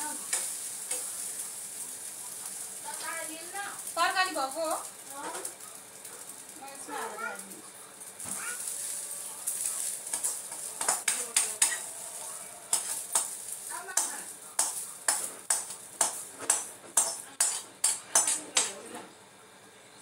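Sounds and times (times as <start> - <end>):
food sizzling in a pan: 0.0 - 18.8
utensil scraping a pan: 8.7 - 18.5.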